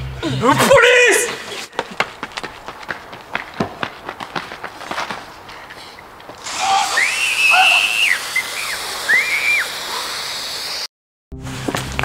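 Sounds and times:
scuffling footsteps and knocks: 1.2 - 6.4
steady hiss: 6.4 - 10.9
high whistle-like squeal: 6.6 - 9.9.

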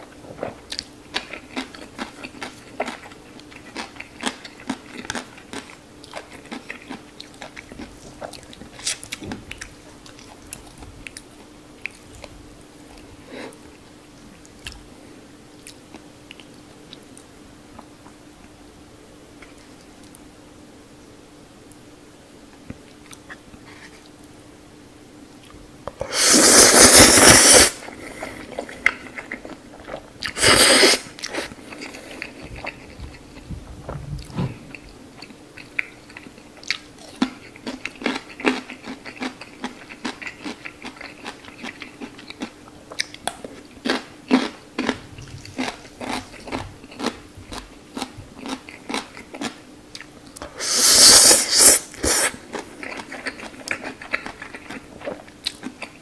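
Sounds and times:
noodle slurping: 26.0 - 29.0, 30.3 - 32.4, 50.6 - 52.4.

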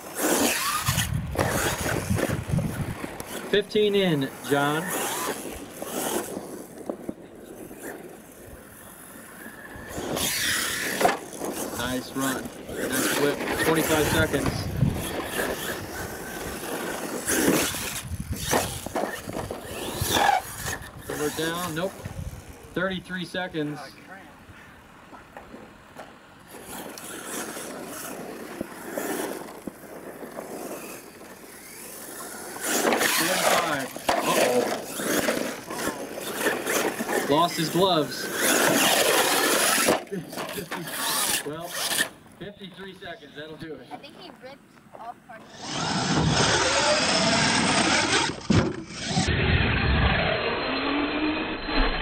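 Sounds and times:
toy truck motor whine: 0.0 - 3.5, 7.8 - 22.7, 26.5 - 42.2, 45.4 - 52.0
tyres churning loose dirt: 25.4 - 42.2, 45.5 - 52.0.

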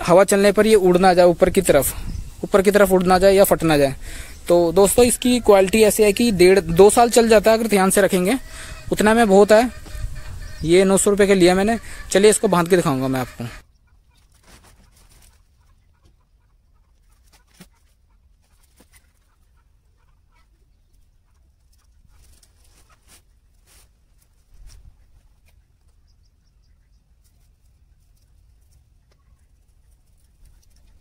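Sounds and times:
chickens clucking: 0.0 - 31.0.

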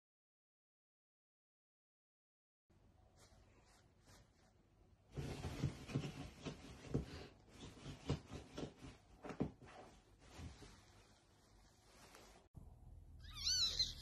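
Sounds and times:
fabric rustling: 3.1 - 12.5.

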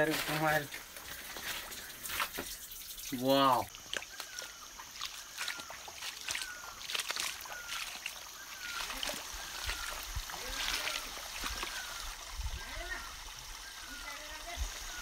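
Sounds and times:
footsteps on wet pebbles: 0.0 - 2.6, 3.6 - 12.0
trickling water: 0.0 - 15.0.

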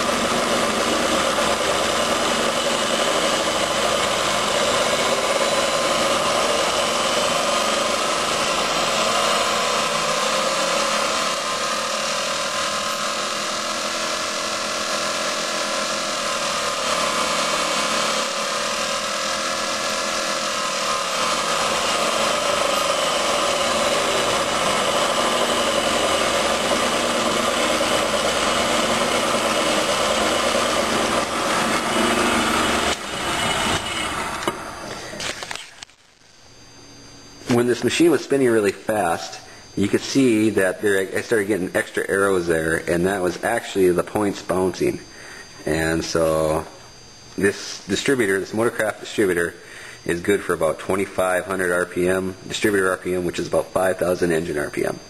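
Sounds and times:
machine whine: 0.0 - 55.0.

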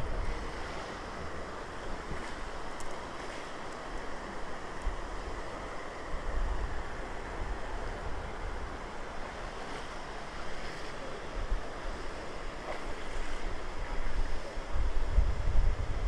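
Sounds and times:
wind buffeting microphone: 0.0 - 1.4, 13.8 - 16.0
river water rushing: 0.0 - 14.8.

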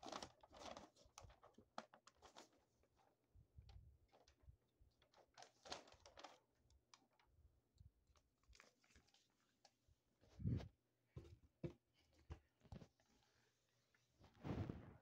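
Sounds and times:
paper rustling and crinkling: 0.0 - 2.8, 5.0 - 7.3.

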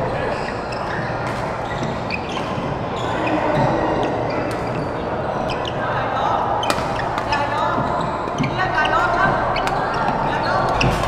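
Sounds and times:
busy hall din: 0.0 - 11.0
racket hitting shuttlecock: 6.6 - 8.5.

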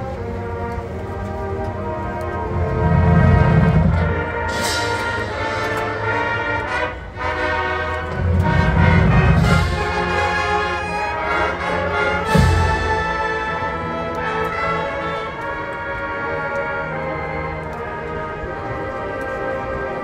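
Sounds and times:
brass chords: 0.0 - 20.0
low drum swells: 2.4 - 6.0.

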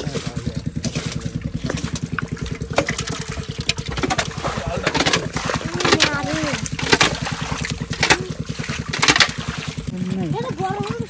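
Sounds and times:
hands splashing in wet mud: 0.0 - 9.9
small engine chugging: 0.0 - 11.0.

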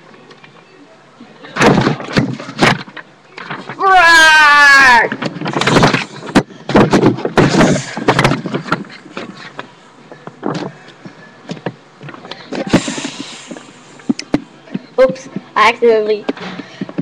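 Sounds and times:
paper rustling on microphone: 1.6 - 3.8, 5.0 - 14.1.

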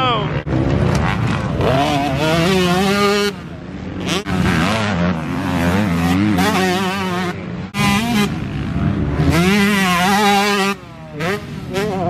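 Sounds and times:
motocross bike engine revving: 0.2 - 12.0.

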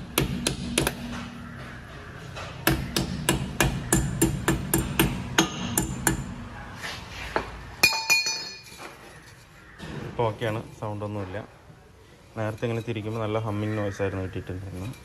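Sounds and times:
hammer striking metal: 2.6 - 6.4, 7.8 - 8.7.

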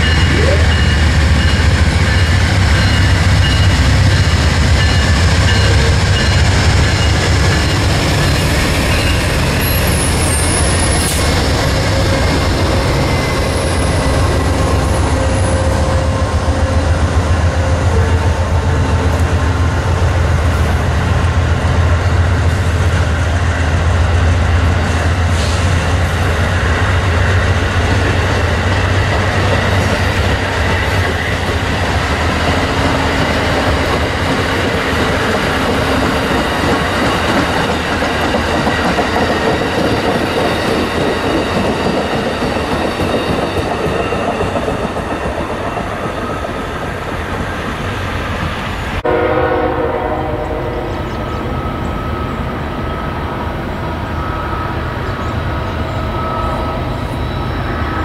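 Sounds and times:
train wheels rumbling and clattering: 0.0 - 49.1
distant train horn: 9.5 - 19.6, 49.0 - 53.2.

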